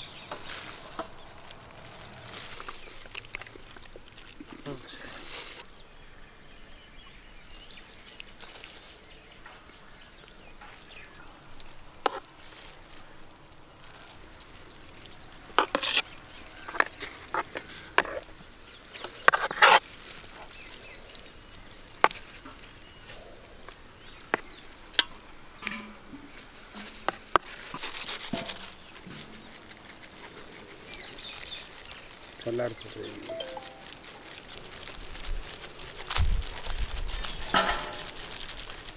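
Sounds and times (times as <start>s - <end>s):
spoon scraping a metal tray: 15.6s - 16.0s.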